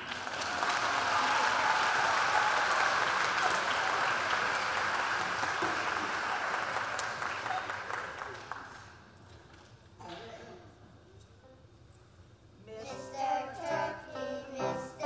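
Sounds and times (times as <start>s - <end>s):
audience applauding: 0.0s - 9.0s.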